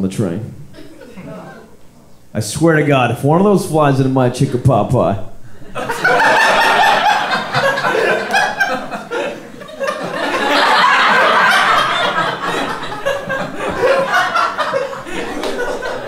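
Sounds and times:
audience laughing: 0:05.6 - 0:16.0.

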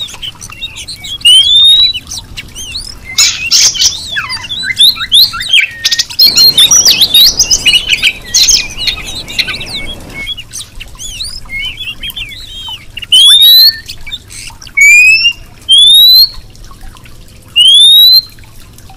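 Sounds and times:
bird chirping: 0:00.0 - 0:16.4
loud rising bird whistles: 0:01.1 - 0:02.0, 0:02.6 - 0:13.9, 0:14.8 - 0:16.3, 0:17.6 - 0:18.3.

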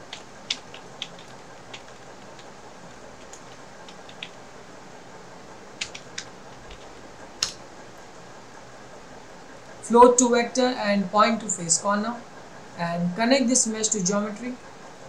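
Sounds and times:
computer keyboard keystrokes: 0:00.0 - 0:04.4, 0:05.8 - 0:07.6
steady low hiss: 0:00.0 - 0:15.0.

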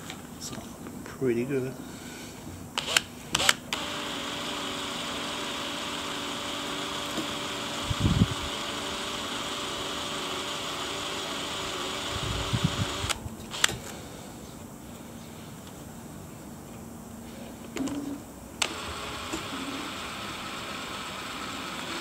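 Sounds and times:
drill bit clicks: 0:02.8 - 0:14.0, 0:18.6 - 0:22.0
electric drill running: 0:02.8 - 0:14.0, 0:18.6 - 0:22.0.

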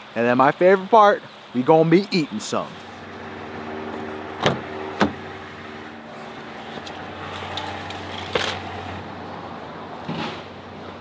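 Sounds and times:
steady low hum: 0:02.6 - 0:09.8
car door shutting: 0:04.3 - 0:05.3
car door unlatching clack: 0:04.4 - 0:05.2.

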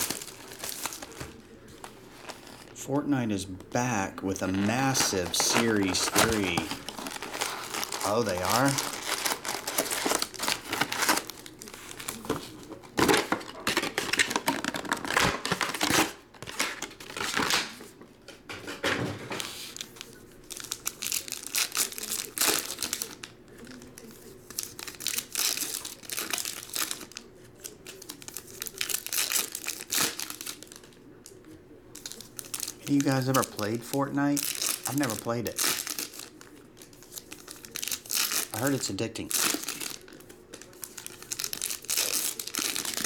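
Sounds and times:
packs being torn open: 0:00.0 - 0:02.7, 0:04.4 - 0:17.9, 0:19.6 - 0:31.4, 0:32.0 - 0:43.0
foil packs crinkling: 0:00.0 - 0:17.9, 0:19.4 - 0:31.0, 0:32.0 - 0:43.0.

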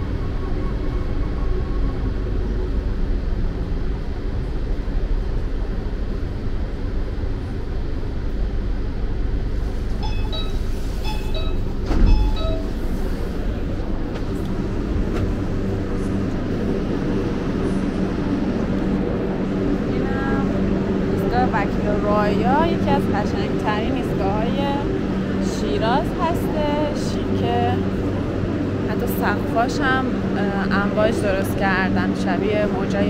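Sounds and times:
subway train rumbling: 0:00.0 - 0:33.0
electronic beeps: 0:10.0 - 0:12.8.

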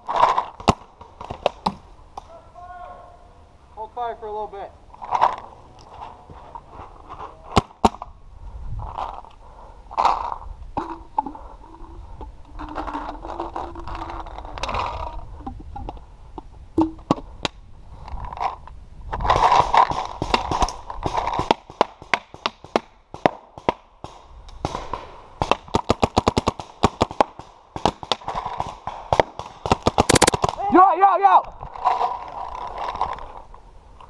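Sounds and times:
paintball markers firing: 0:19.3 - 0:30.6.

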